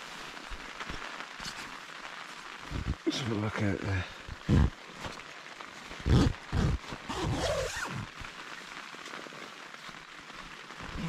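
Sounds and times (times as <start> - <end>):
tent door unzipping: 6.0 - 8.3.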